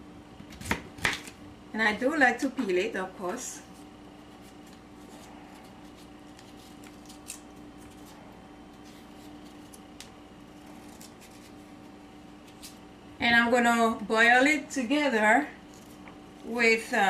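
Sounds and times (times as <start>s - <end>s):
faint hum: 0.0s - 17.0s
knife scraping squash skin: 10.6s - 12.8s.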